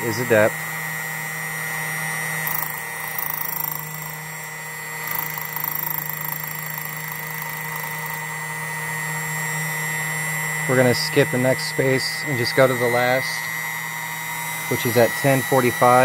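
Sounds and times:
machine motor humming: 0.0s - 16.0s
rotary cutter cutting key: 1.7s - 13.6s.

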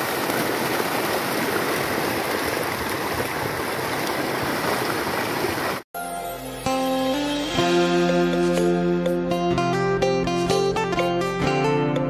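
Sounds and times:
fish thrashing and splashing water: 0.0s - 5.8s.

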